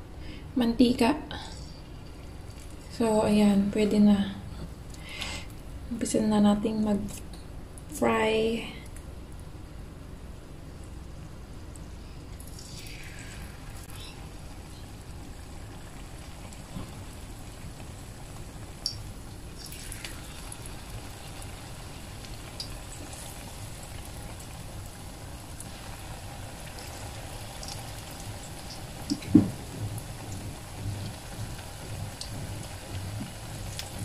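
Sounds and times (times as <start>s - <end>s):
eggs sizzling in hot oil: 11.8s - 34.0s
oil popping and crackling: 11.8s - 34.0s.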